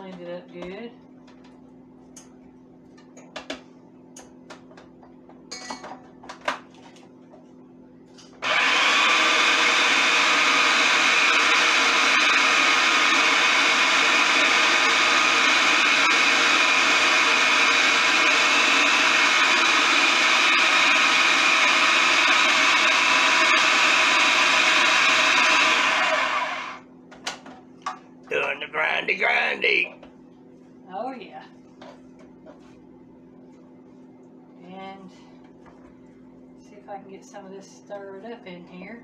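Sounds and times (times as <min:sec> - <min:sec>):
food processor motor running: 0:08.4 - 0:26.8.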